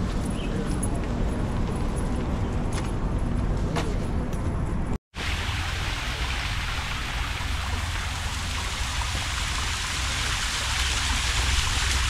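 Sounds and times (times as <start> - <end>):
running water rushing: 5.2 - 12.0.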